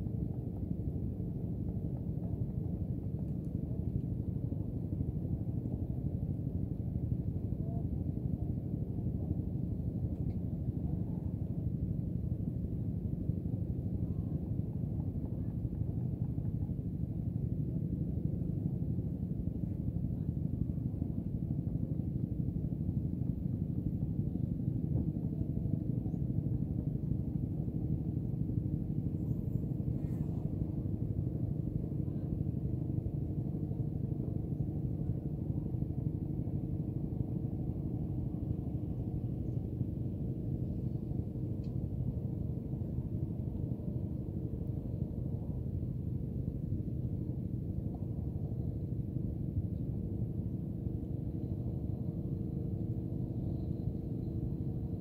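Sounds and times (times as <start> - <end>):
steady low rumble with drone: 0.0 - 55.0.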